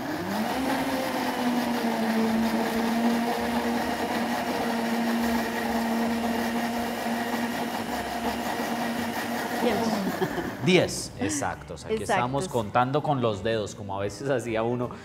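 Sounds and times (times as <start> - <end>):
blender motor whine: 0.0 - 10.9.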